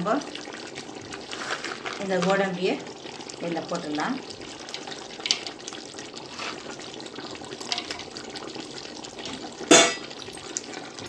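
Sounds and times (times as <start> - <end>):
food sizzling in a pot: 0.0 - 11.0.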